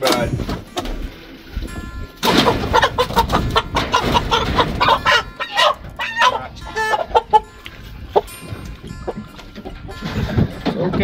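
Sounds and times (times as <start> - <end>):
chickens squawking and clucking: 2.1 - 10.6.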